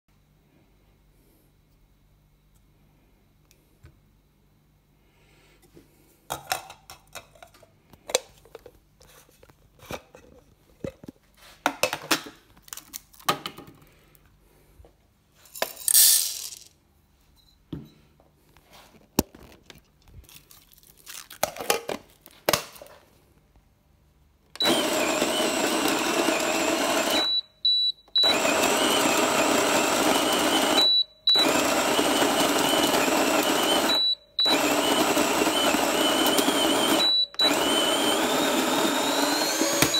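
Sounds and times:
coffee beans rattling: 15.4s - 16.7s
grinder motor grinding beans: 24.6s - 39.9s.

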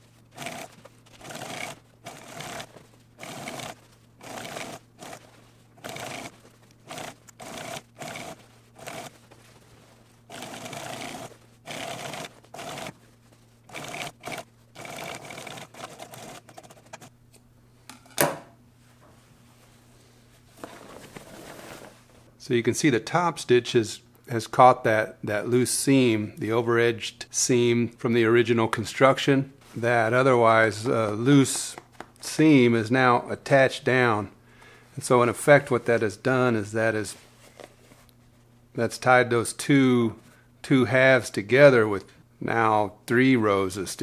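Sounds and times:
sewing machine stitching: 0.3s - 9.2s, 10.3s - 13.0s, 13.7s - 17.1s.

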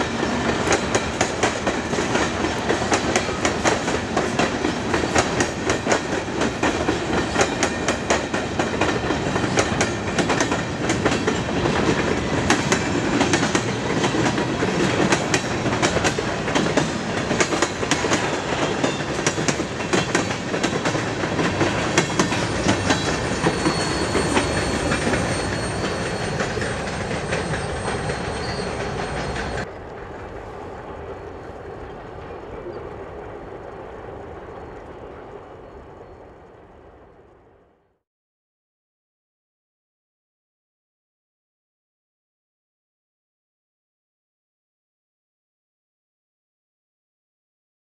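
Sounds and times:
freight train passing: 0.0s - 37.8s
wheels clicking over rail joints: 0.1s - 36.4s.

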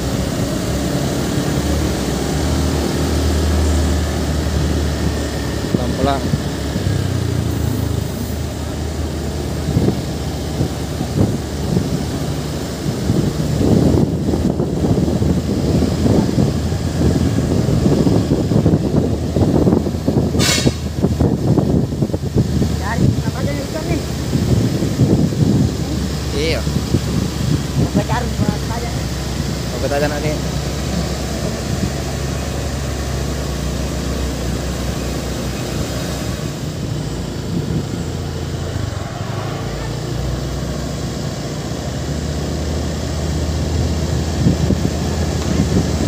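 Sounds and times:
truck diesel engine rumbling: 0.0s - 46.0s
short hiss: 20.4s - 20.9s.

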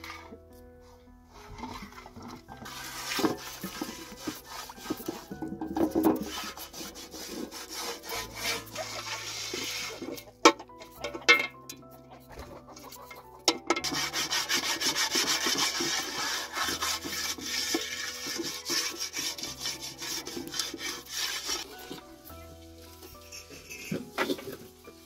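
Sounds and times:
soft background music: 0.0s - 25.0s
cloth scrubbing metal pan: 1.4s - 11.6s, 12.7s - 22.0s.

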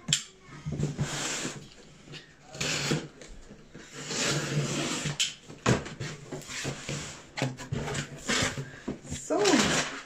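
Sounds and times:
cardboard scraping and rustling: 3.8s - 10.0s.

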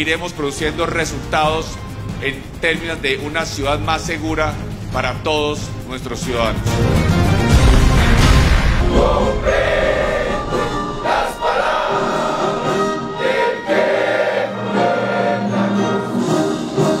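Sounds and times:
group singing in chorus: 8.7s - 17.0s.

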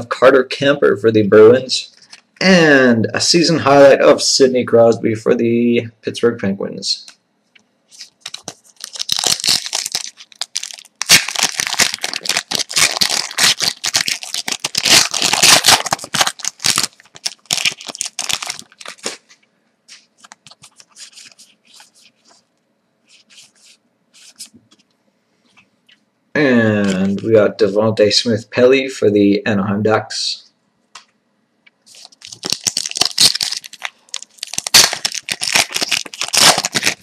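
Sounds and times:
foil wrapper crinkling and tearing: 7.9s - 19.3s, 20.1s - 22.3s, 31.9s - 37.0s
cards and wrapper rustling: 7.9s - 22.4s, 31.9s - 37.0s.

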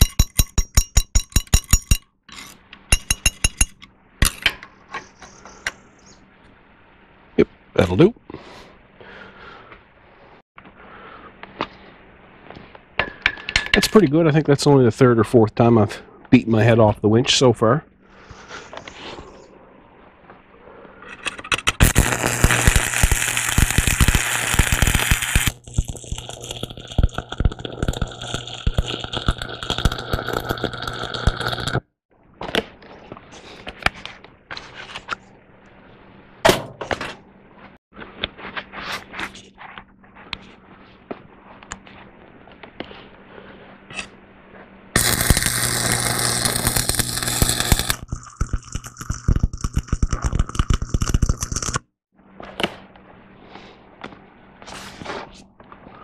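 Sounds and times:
welding arc crackling: 21.6s - 31.9s, 45.0s - 51.8s.

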